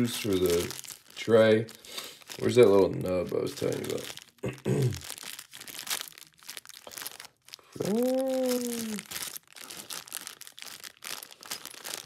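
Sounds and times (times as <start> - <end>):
packaging rustling and crinkling: 0.0 - 12.0
person humming: 7.8 - 9.1.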